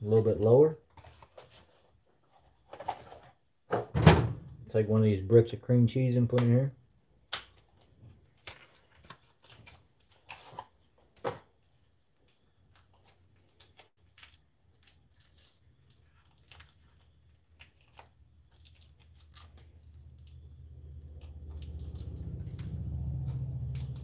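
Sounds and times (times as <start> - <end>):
wrapper crinkling: 7.4 - 11.0, 12.2 - 22.8.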